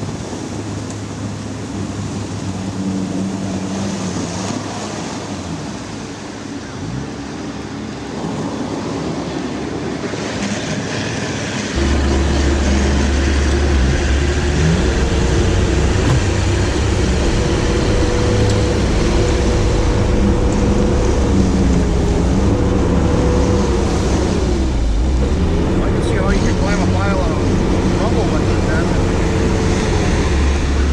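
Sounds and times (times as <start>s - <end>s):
steady low rumble: 11.7s - 30.9s
diesel vehicle engine running: 11.8s - 30.9s.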